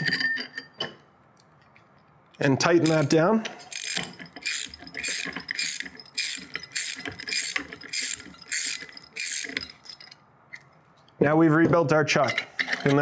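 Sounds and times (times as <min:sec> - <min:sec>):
ratchet wrench clicking: 0:02.8 - 0:10.2.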